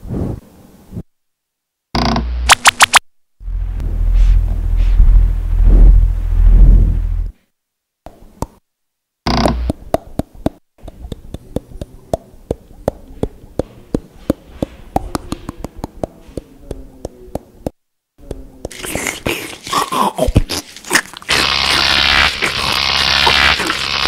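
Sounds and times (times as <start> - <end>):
cartoon chewing and crunching: 18.3 - 24.0
loud buzzing hiss: 21.3 - 24.0.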